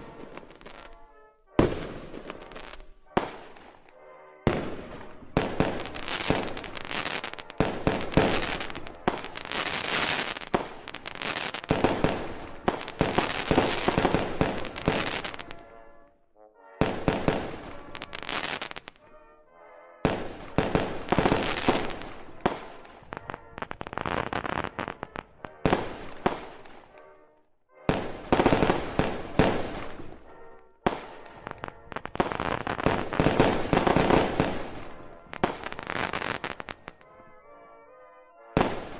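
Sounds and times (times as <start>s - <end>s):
fireworks cracks and booms: 0.0s - 1.0s, 1.6s - 3.9s, 4.5s - 15.8s, 16.8s - 19.1s, 20.1s - 27.1s, 27.9s - 37.0s.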